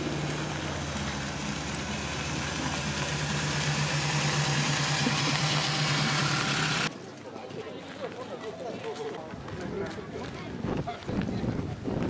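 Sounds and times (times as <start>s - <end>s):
small two-stroke engine running: 0.0s - 6.9s.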